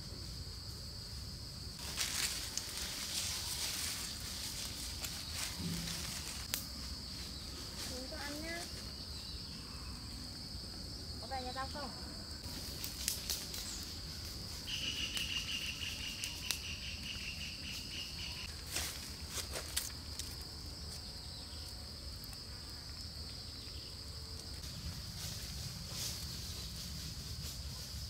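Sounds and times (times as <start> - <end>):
insects droning high-pitched: 0.0 - 28.0
fast pulsing insect trill: 1.6 - 18.5.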